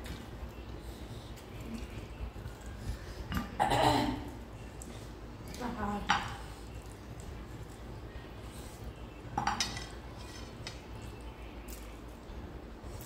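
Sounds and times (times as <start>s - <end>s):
chewing: 0.0s - 3.6s, 6.3s - 8.9s.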